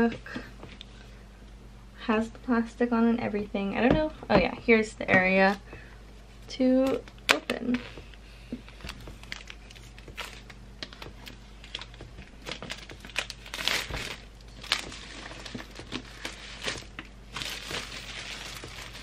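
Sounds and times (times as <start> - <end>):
plastic wrap crinkling and tearing: 8.7 - 19.0.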